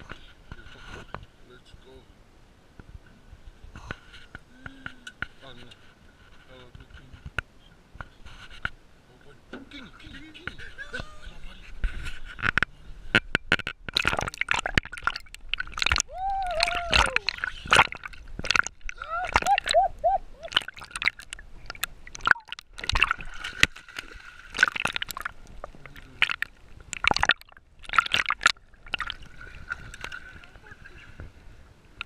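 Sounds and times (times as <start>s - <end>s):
water sloshing and gurgling: 11.7s - 32.0s
short bubbling tones: 13.6s - 30.4s.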